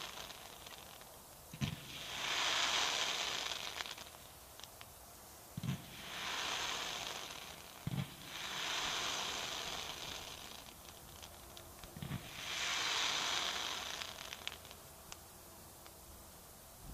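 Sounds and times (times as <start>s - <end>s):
faint firework crackles: 0.0s - 16.9s
firework hiss: 0.0s - 16.9s
firework launch thumps: 1.5s - 4.1s, 7.8s - 8.8s.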